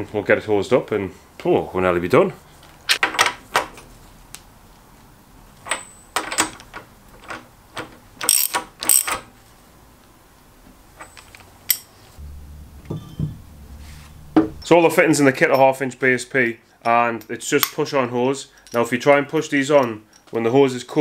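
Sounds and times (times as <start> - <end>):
socket ratchet clicking: 8.2 - 9.2.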